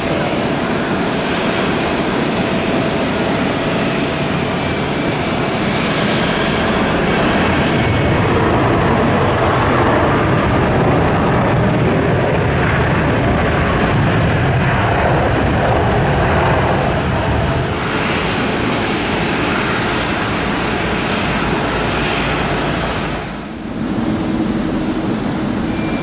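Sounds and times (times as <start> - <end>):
jet engines roaring: 0.0 - 26.0.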